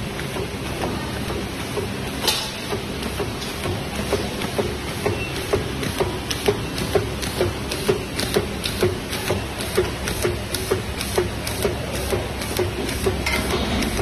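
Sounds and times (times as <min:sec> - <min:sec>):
regular machine clicks: 0:05.4 - 0:14.0
machine humming: 0:12.2 - 0:14.0.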